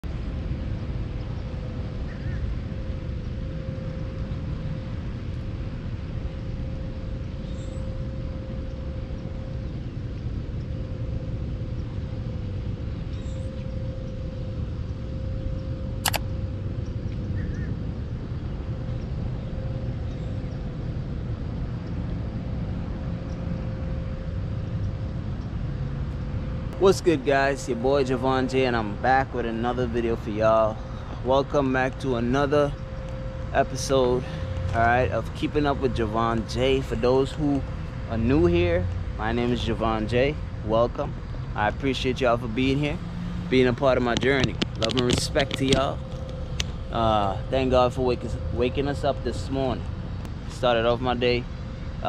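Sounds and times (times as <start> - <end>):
low outdoor rumble: 0.0 - 52.0
mid-pitched hum: 0.0 - 52.0
faint bird chirps: 1.2 - 2.5, 7.4 - 8.0, 13.0 - 15.8
sharp click: 16.0 - 16.3.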